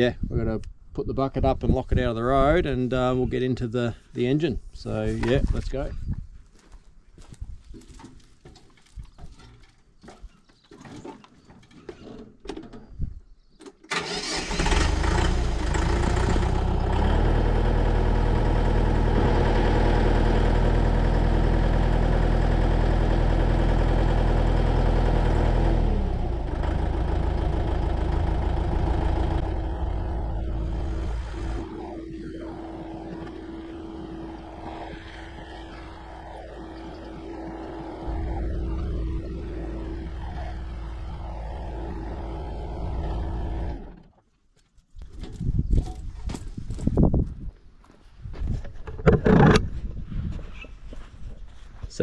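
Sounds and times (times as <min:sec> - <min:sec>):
tractor diesel engine running: 0:13.9 - 0:44.1.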